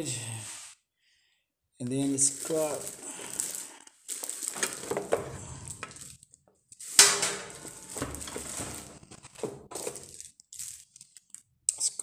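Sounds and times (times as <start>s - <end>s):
plastic wrapping crinkling: 2.0s - 11.5s
hard plastic parts clattering: 2.1s - 11.4s.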